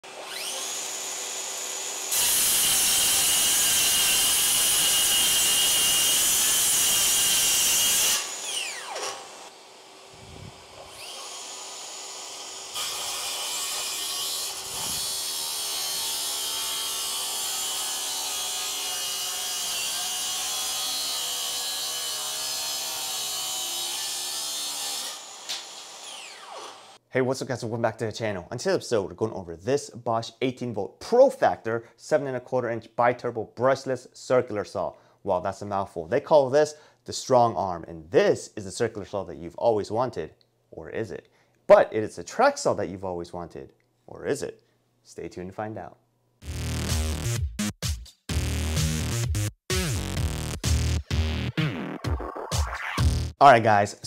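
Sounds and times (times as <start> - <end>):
saw winding down whine: 0.0 - 3.4, 7.9 - 16.0, 25.1 - 27.0
circular saw cutting wood: 0.0 - 27.0.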